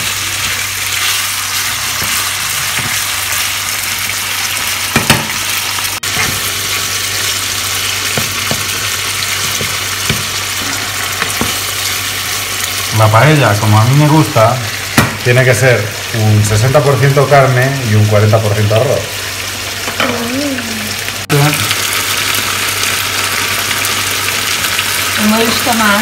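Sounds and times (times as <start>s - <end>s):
chicken sizzling in a pan: 0.0s - 26.0s
spoon knocking against pan: 4.9s - 5.4s, 8.1s - 8.8s, 9.4s - 10.4s.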